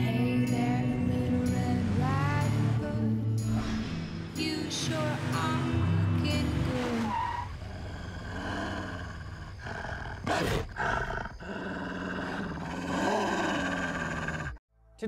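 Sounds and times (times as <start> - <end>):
dog growling: 7.6 - 14.6.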